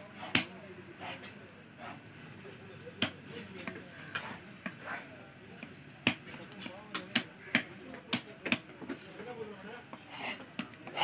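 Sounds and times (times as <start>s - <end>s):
faint chatter: 0.0s - 11.0s
knife chopping fish on wood: 0.3s - 0.5s.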